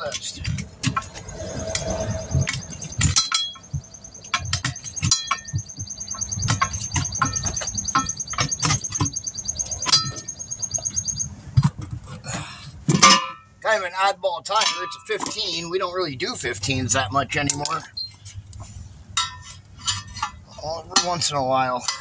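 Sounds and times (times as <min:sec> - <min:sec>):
tire irons clinking on wheel rim: 0:00.0 - 0:13.8, 0:14.4 - 0:22.0
bird trilling: 0:01.0 - 0:11.6.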